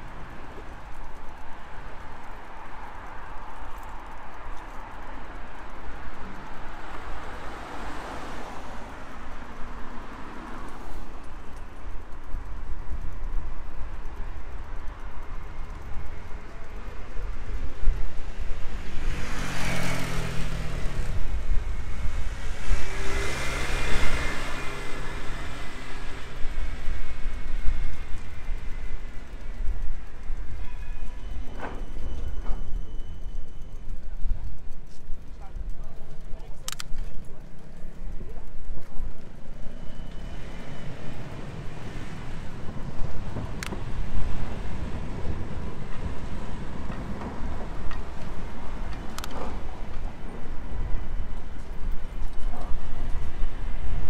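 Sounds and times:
motor vehicles passing: 0:00.0 - 0:30.6, 0:33.5 - 0:54.0
low rumble from bicycle riding: 0:00.0 - 0:54.0
street traffic noise: 0:00.0 - 0:54.0
sharp click: 0:36.6 - 0:37.2, 0:49.0 - 0:49.6
wind buffeting microphone: 0:40.2 - 0:54.0.

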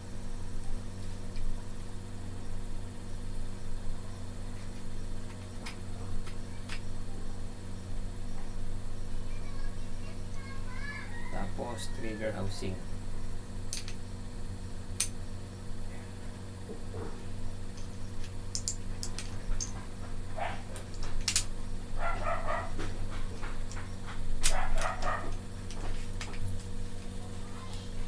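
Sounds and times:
small metal parts clicking: 0:13.7 - 0:14.0, 0:17.7 - 0:19.8, 0:20.9 - 0:21.5.

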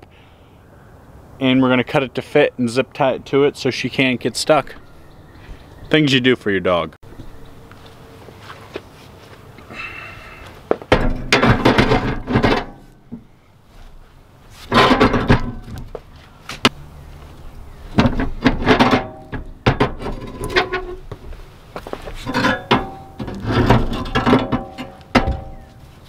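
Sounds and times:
metal clanking and scraping: 0:10.9 - 0:13.0, 0:14.6 - 0:15.8, 0:18.0 - 0:21.1, 0:21.9 - 0:26.0.

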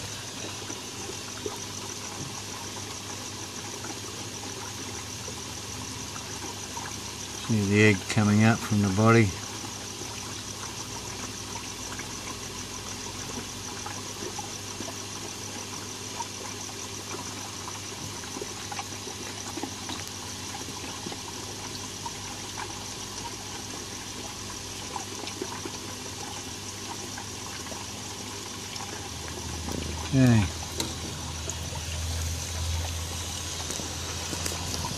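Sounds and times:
trickling water: 0:00.0 - 0:34.9
small ticks: 0:09.4 - 0:31.6, 0:32.2 - 0:34.9.

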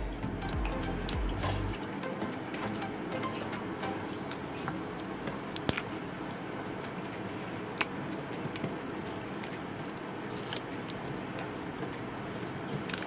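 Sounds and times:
steady background hiss: 0:00.0 - 0:12.9
snack packets crackling: 0:12.3 - 0:13.0.

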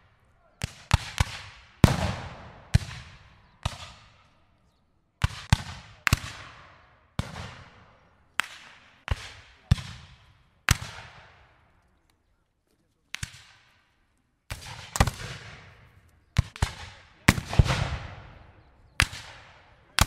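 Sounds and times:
gunshots with echo: 0:00.6 - 0:04.2, 0:16.4 - 0:20.0.

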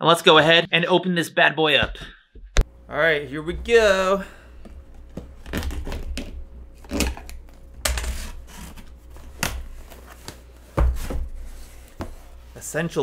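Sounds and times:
cardboard rustling and scraping: 0:07.9 - 0:13.0.

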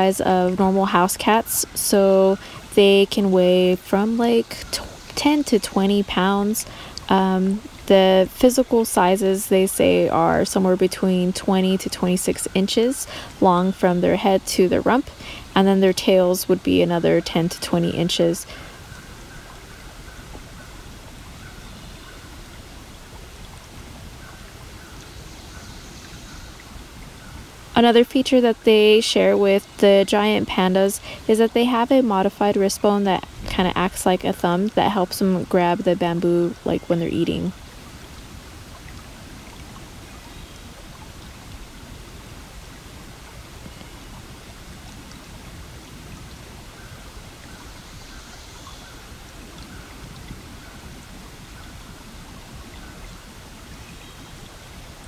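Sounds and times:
rain-like background hiss: 0:00.0 - 0:55.0
faint ticks: 0:06.6 - 0:07.9, 0:43.6 - 0:44.2.

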